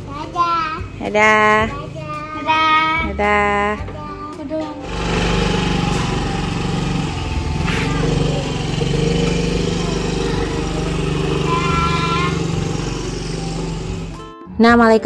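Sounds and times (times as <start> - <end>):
motor scooter engine running: 4.8 - 14.3.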